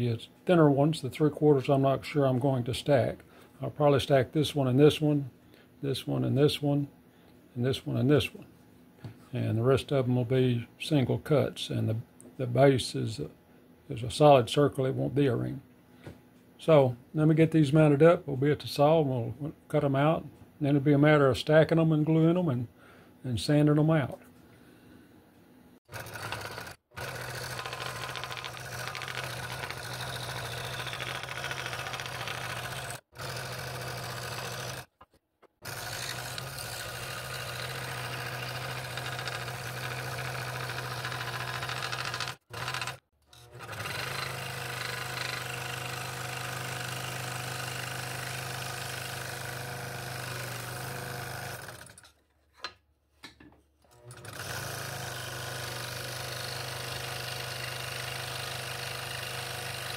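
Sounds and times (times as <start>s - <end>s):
scroll saw cutting wood: 25.9s - 35.0s, 35.6s - 52.1s, 53.9s - 59.9s.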